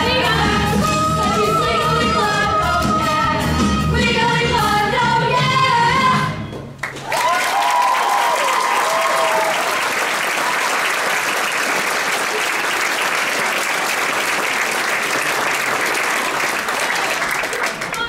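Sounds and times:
audience applauding: 6.8 - 18.0.

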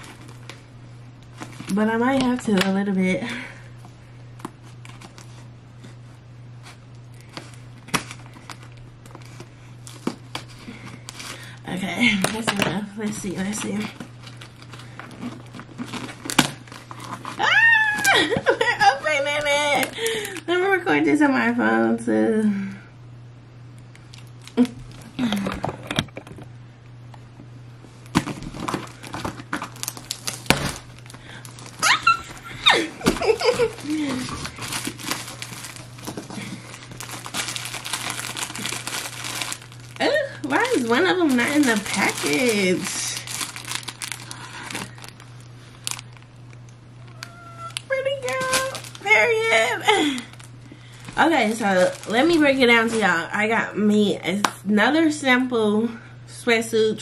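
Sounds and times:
steady low hum: 0.0 - 57.0
packing tape and cardboard tearing: 6.6 - 11.5, 12.2 - 20.4, 28.0 - 45.2, 45.8 - 46.3, 47.0 - 49.3, 50.0 - 53.1.

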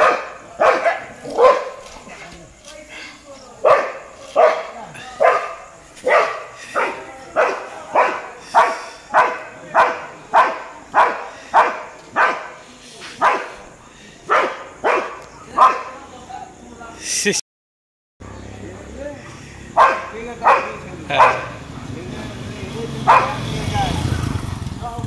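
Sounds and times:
dog barking aggressively: 0.0 - 1.9, 3.6 - 12.6, 13.2 - 16.0, 19.8 - 21.7, 23.0 - 23.6.

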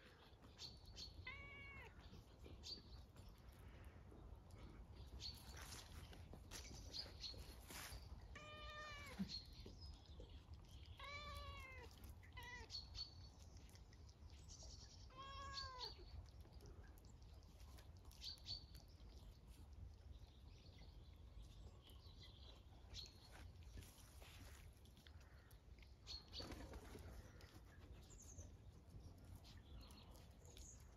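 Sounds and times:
cat meowing: 1.2 - 2.0, 8.4 - 9.3, 11.0 - 12.7.

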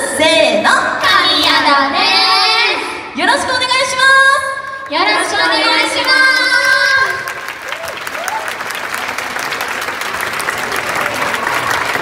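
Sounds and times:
audience applauding: 5.6 - 12.0.

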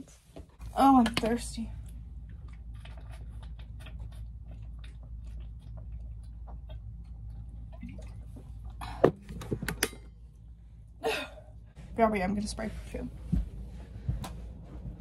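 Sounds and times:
steady low hum: 0.0 - 15.0
person gulping and swallowing: 4.8 - 9.6.

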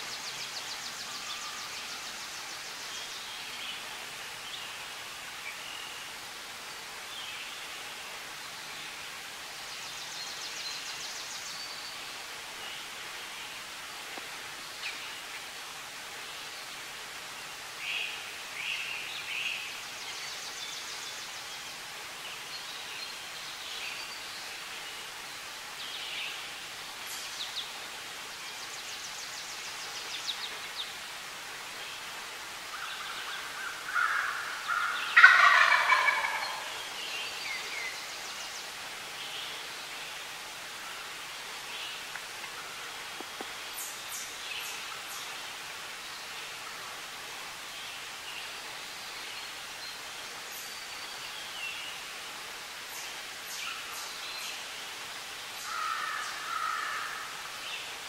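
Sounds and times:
songbirds chirping: 0.0 - 58.0
low turkey call: 33.9 - 36.7
turkey gobbling: 34.2 - 36.7.

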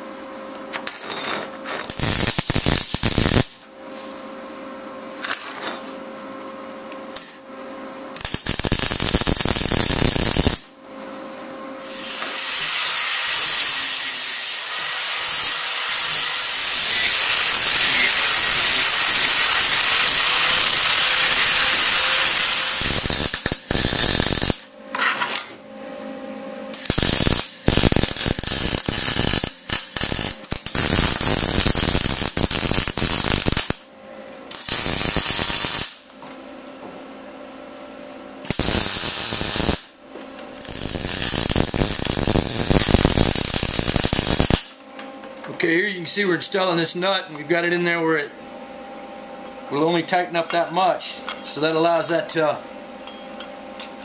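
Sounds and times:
welder arc crackling and buzzing: 0.7 - 3.8, 7.1 - 25.6, 26.6 - 36.4, 38.3 - 48.3.

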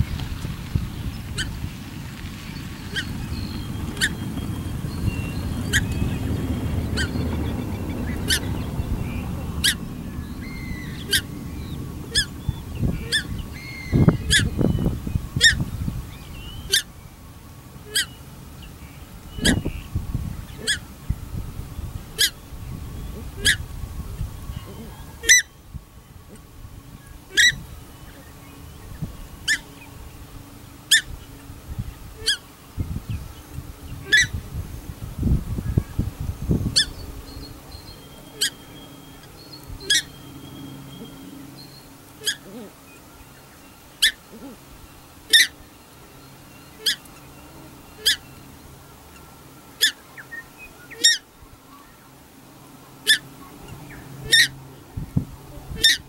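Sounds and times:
low rumble: 0.0 - 17.8
ducks honking shrilly: 2.8 - 15.6, 16.6 - 16.9, 17.8 - 18.2, 19.4 - 19.7, 20.5 - 20.9, 22.2 - 22.4, 23.2 - 23.6, 24.7 - 25.5, 27.2 - 27.7, 32.2 - 32.5, 34.0 - 34.4, 38.2 - 41.5, 42.1 - 42.8, 44.0 - 45.6, 46.8 - 48.3, 50.9 - 51.3, 53.0 - 54.6, 55.7 - 56.0.

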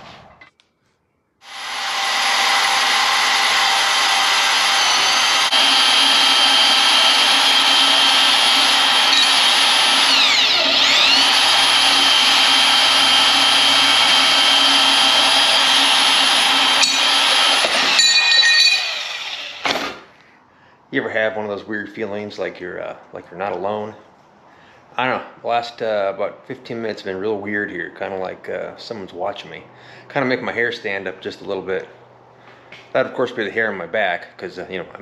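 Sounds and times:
band saw cutting steel: 1.4 - 20.1.

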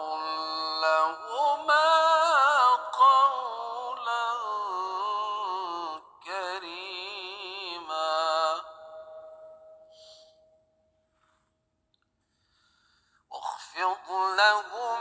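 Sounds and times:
solo voice chanting: 13.3 - 15.0.

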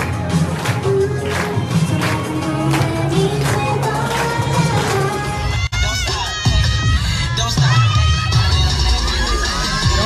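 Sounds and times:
pop dance music: 0.0 - 10.0.

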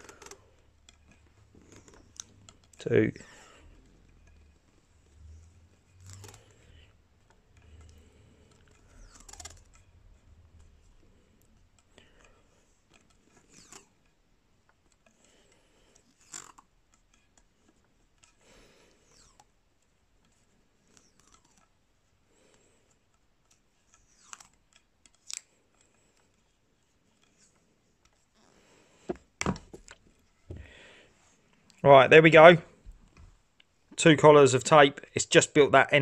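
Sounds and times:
electrical tape peeling and winding: 0.0 - 30.5.

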